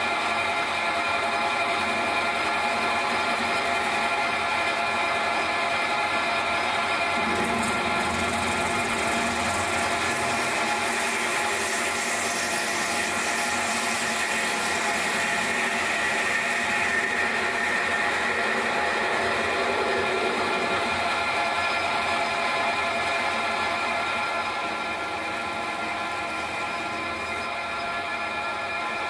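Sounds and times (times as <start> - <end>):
lathe motor whine: 0.0 - 29.0
lathe tool cutting metal: 0.0 - 29.0.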